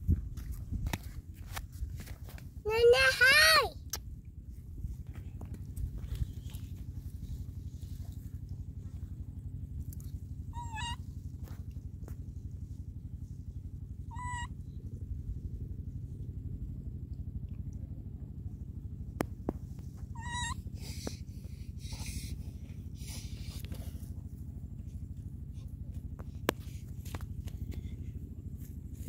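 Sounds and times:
low rumble: 0.0s - 2.7s, 3.7s - 29.0s
baby monkey squeaky calls: 10.5s - 11.0s, 14.1s - 14.6s, 20.1s - 21.0s.

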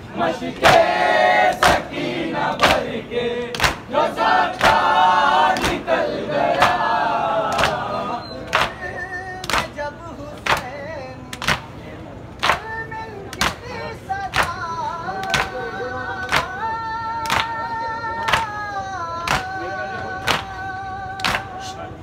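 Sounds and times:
men chanting in unison: 0.0s - 10.9s
hands slapping on chests: 3.5s - 3.8s, 5.5s - 5.8s, 8.5s - 8.8s, 9.4s - 9.7s, 16.2s - 16.5s, 19.3s - 19.5s, 21.2s - 21.5s.

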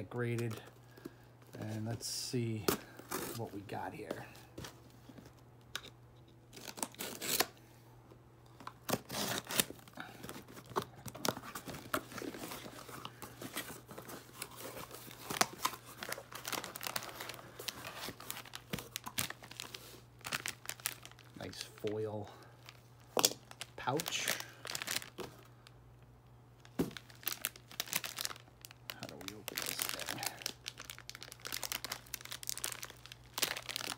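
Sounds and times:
tape tearing: 6.5s - 7.5s, 8.8s - 9.8s
knife slicing packing tape: 6.7s - 7.5s, 8.9s - 9.7s
foil pouch crinkling: 9.0s - 25.7s, 26.6s - 33.9s.

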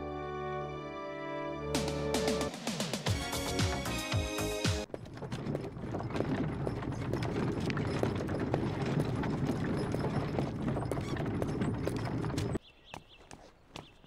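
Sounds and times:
music: 0.0s - 4.9s
handcart rumbling over cobblestones: 4.8s - 12.6s.

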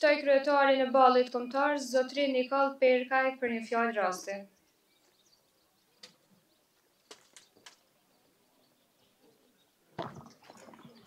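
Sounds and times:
faint clicks: 6.0s - 6.2s, 7.0s - 7.9s.

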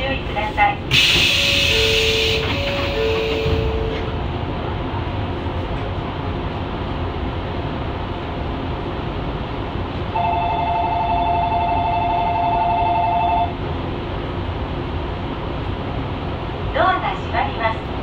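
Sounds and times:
train hum: 0.0s - 18.0s
electric bell ringing: 10.2s - 13.5s.

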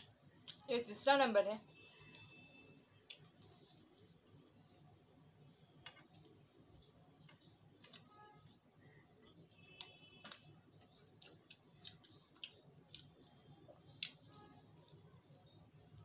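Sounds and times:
crisp pastry being bitten: 2.0s - 5.0s, 9.3s - 16.0s.

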